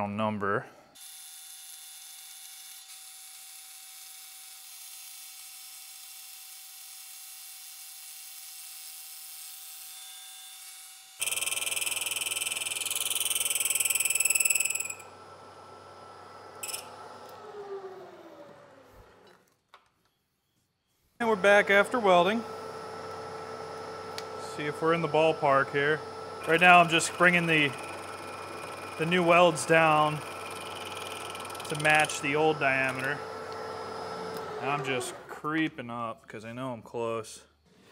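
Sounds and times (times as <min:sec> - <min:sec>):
boring bar cutting metal: 0:10.1 - 0:18.4, 0:21.3 - 0:35.4
milling spindle whine: 0:21.2 - 0:35.3.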